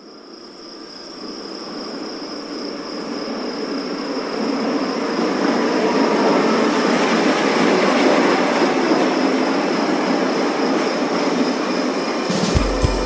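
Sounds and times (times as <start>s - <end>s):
crickets chirring: 0.0s - 13.0s
approaching train: 4.2s - 13.0s.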